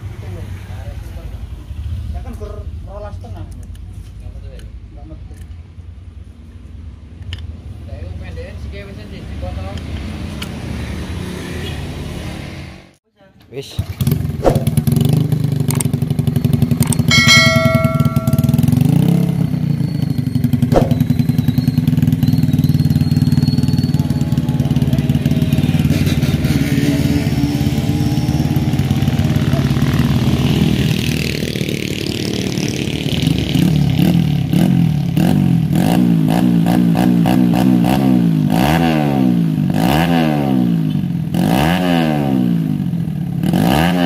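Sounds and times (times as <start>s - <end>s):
motorcycle engine idling and revving: 0.0s - 13.0s, 13.7s - 44.0s
brief high tone: 17.1s - 19.1s.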